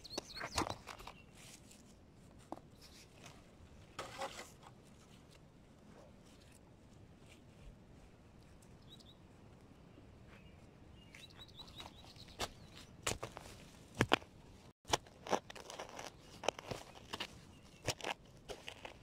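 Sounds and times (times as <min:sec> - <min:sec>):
bird chirping: 0:00.0 - 0:01.3, 0:08.8 - 0:09.2, 0:10.3 - 0:12.9
soil and plants crunching: 0:11.1 - 0:19.0.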